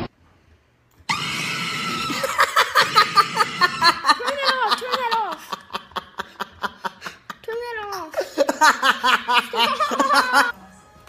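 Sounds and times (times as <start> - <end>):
laughter: 2.0 - 10.6.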